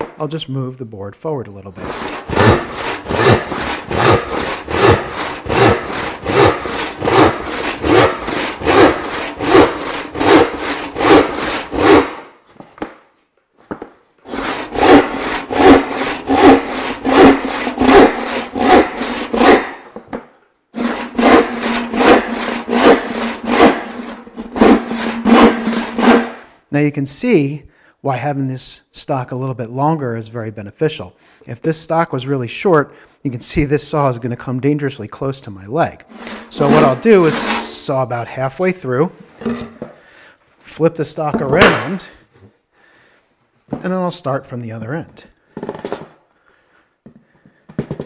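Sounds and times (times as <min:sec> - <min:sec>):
hand saw cutting wood: 0:01.8 - 0:12.3, 0:14.3 - 0:19.9, 0:20.8 - 0:26.6, 0:36.0 - 0:38.0.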